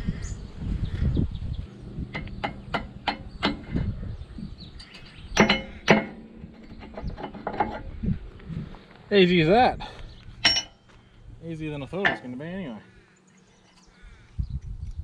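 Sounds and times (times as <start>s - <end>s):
loud metal knocks: 1.7s - 8.0s
spanner clicking on metal: 2.0s - 3.9s.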